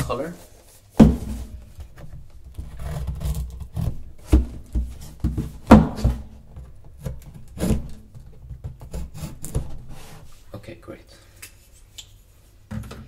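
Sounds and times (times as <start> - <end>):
cardboard rubbing and scraping: 2.5 - 6.2.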